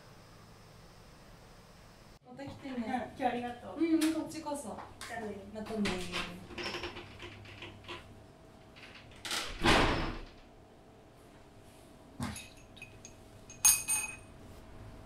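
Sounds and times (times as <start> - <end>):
glass door swinging shut: 8.8 - 10.4
crockery clinking: 12.3 - 14.3.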